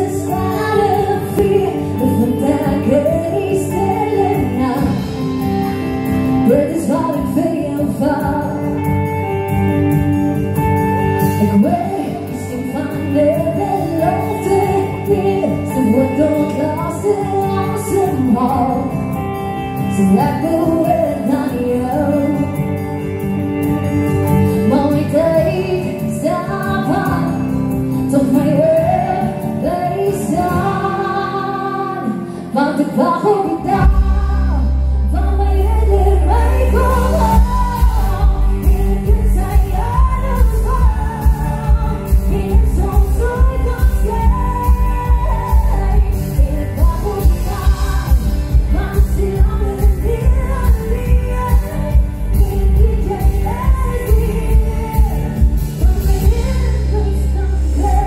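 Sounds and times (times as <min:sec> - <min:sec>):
amplified backing music: 0:00.0 - 0:58.0
woman singing into microphone: 0:00.0 - 0:58.0
heavy bass: 0:33.8 - 0:58.0.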